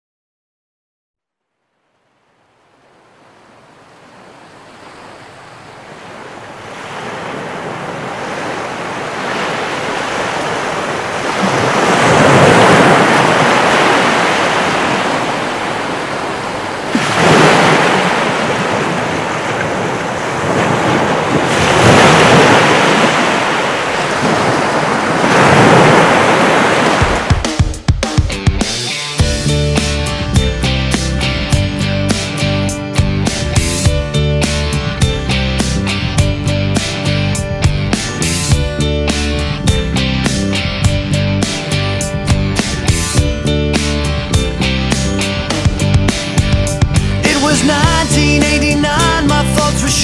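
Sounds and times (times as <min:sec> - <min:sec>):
sea waves washing in: 0:01.9 - 0:27.9, 0:41.2 - 0:47.8.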